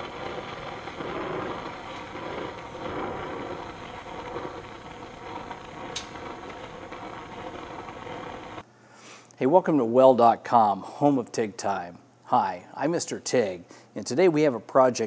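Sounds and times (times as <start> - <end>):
gas torch flame hissing: 0.0 - 8.6.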